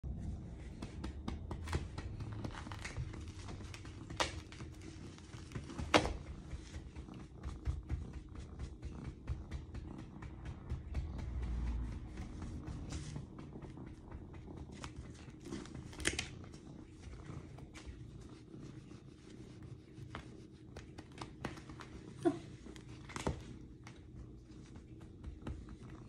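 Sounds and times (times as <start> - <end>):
cat purring: 0.0 - 26.0
soft rustles of hand on fur: 14.7 - 26.0.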